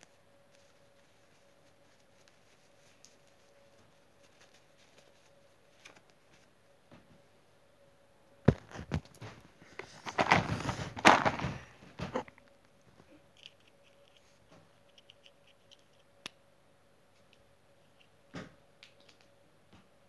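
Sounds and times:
rustling handling noise on microphone: 0.5 - 7.2, 8.5 - 12.2.

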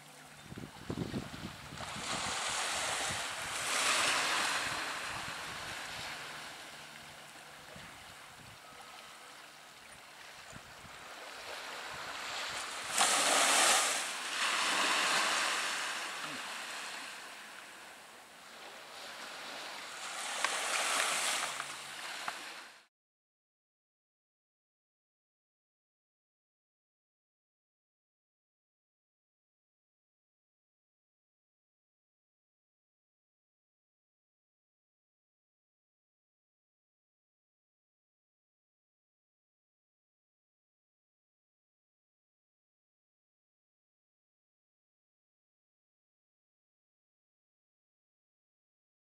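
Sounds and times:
small waves washing on shore: 0.0 - 22.9
wind on microphone: 0.3 - 6.5, 7.6 - 8.8, 10.4 - 15.8.

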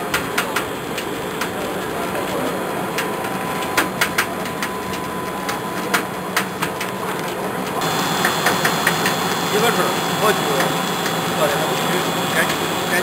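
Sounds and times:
sharp clicks and taps: 7.6 - 9.4, 10.6 - 11.2
machine motor hum: 7.8 - 13.0.

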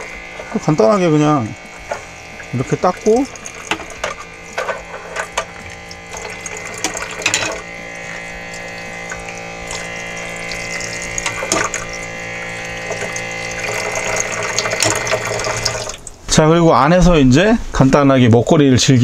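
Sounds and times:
water running from faucet: 0.0 - 16.3
pump motor humming: 0.0 - 16.4
utensils knocking on metal basin: 1.8 - 9.9, 10.6 - 11.9.

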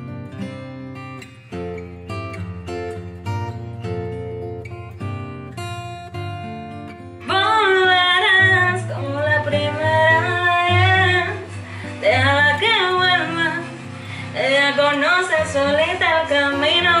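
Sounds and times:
acoustic guitar playing: 0.0 - 17.0
woman singing: 7.2 - 17.0.

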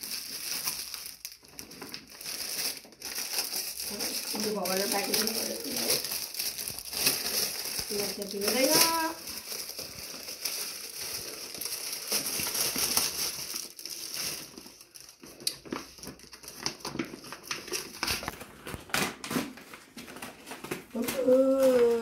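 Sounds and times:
paper bag rustling: 0.0 - 22.0.

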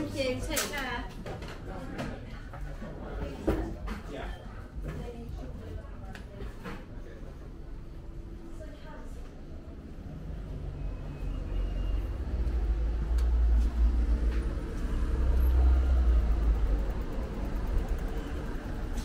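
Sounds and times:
road traffic rumble: 7.2 - 19.0.

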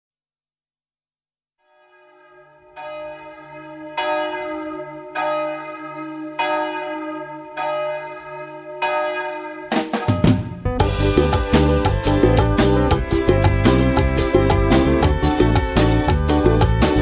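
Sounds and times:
bell tolling: 1.8 - 17.0
drum-led music: 9.7 - 17.0
steady low drone: 10.7 - 17.0.

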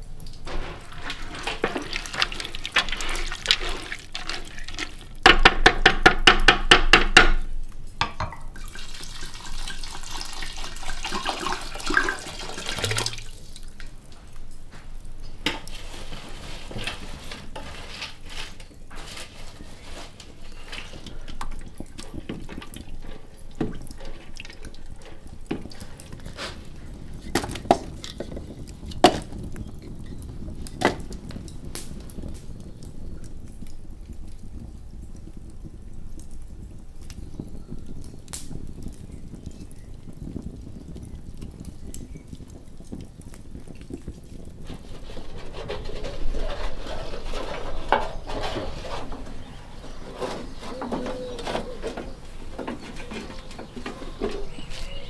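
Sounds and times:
water running and splashing: 0.0 - 5.3, 8.4 - 14.5, 18.2 - 55.0.

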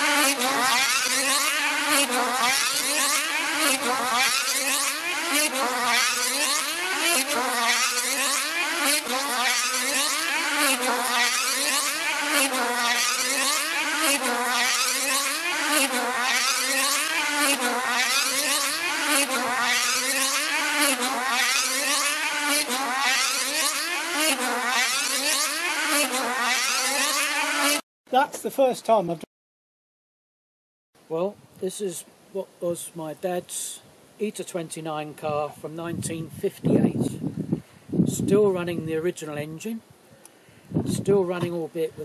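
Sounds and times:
model engine running high-pitched: 0.0 - 27.8.

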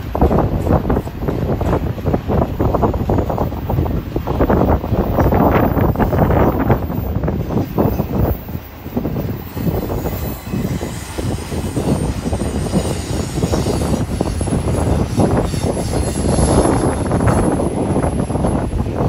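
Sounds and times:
train wheels rumbling on rails: 0.0 - 19.0.

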